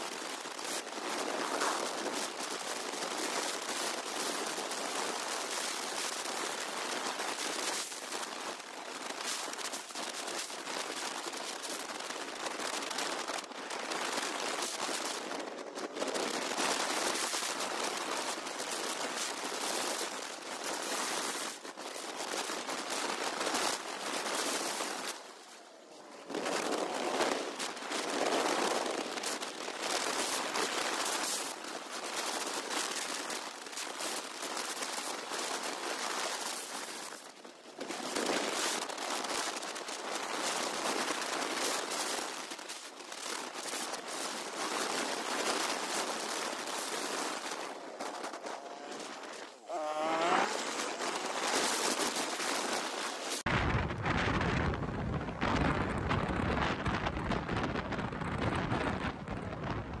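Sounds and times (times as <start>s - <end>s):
wind buffeting microphone: 43.2s - 60.0s.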